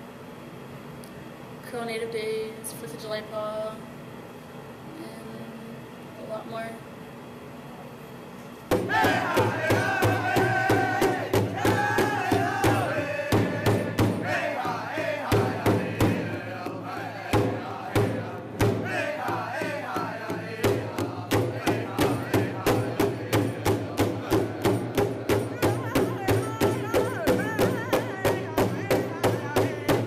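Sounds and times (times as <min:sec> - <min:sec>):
large drum beat: 0:08.7 - 0:30.0
singers chanting in unison: 0:08.8 - 0:30.0.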